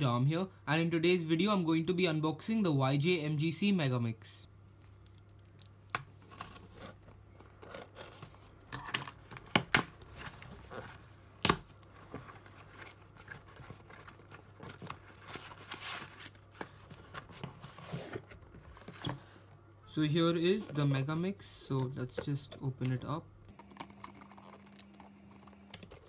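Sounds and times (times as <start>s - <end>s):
cardboard rustling and tearing: 11.8s - 19.4s.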